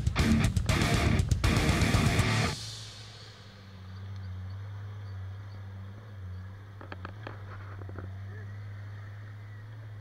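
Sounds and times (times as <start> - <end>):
engine running at low revs: 0.0 - 10.0.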